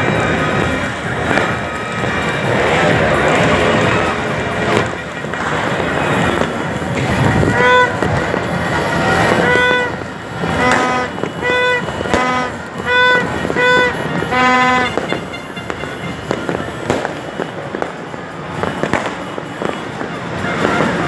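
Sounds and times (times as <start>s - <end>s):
distant fireworks popping and crackling: 0.0s - 21.0s
short horn blasts: 7.5s - 8.2s, 9.1s - 16.4s.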